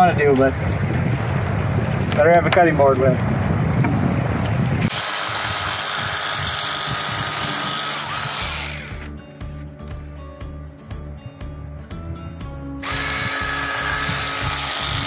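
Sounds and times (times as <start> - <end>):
electric fillet knife running: 4.9 - 9.1, 12.8 - 15.0
background music: 7.9 - 15.0.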